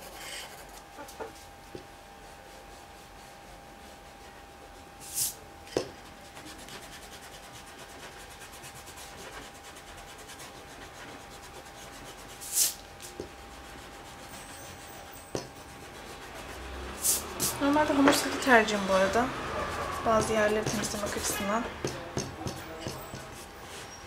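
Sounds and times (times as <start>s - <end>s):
pencil scratching on paper: 0.0s - 1.4s, 6.0s - 18.4s, 19.5s - 24.0s.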